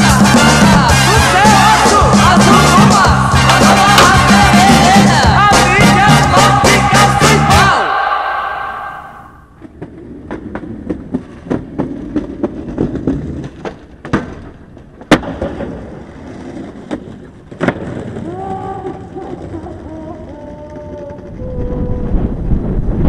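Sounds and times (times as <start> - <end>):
skateboard sharp crack: 9.6 - 19.9
skateboard clacks and knocks: 9.6 - 21.4
skateboard wheels rumbling: 9.6 - 23.0.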